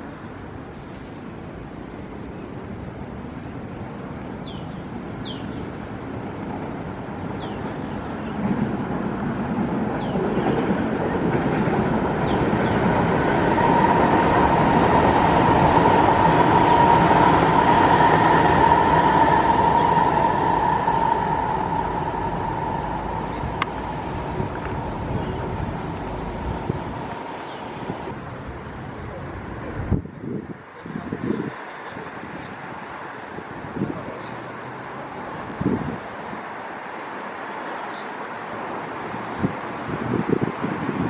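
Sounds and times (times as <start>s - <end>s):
steady train whine: 0.0s - 30.6s
train rumble and rail noise: 0.0s - 41.0s.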